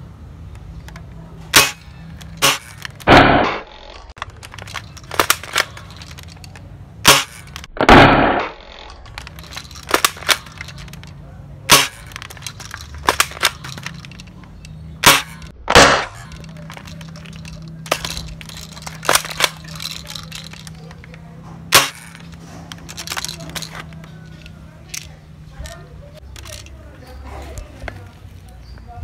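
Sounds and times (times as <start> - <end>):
rifle clicks: 0.5 - 26.8
airsoft rifle shots: 1.5 - 6.0, 7.0 - 9.0, 11.7 - 14.0, 15.0 - 20.4, 21.7 - 22.4.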